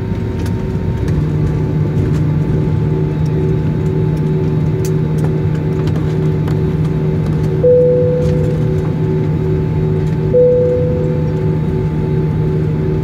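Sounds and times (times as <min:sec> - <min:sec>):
jet engine hum in cabin: 0:00.0 - 0:13.0
clear tone: 0:07.6 - 0:09.2, 0:10.3 - 0:11.8.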